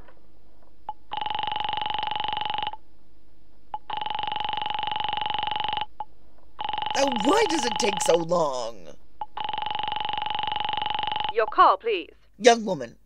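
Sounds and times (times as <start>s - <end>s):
buzzy telephone ringing: 1.1s - 2.8s, 3.9s - 5.9s, 6.6s - 11.4s.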